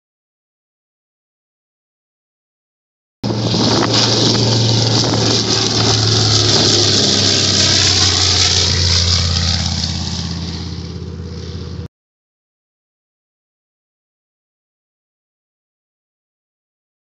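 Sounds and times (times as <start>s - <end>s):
propeller plane flying past: 3.2s - 11.9s.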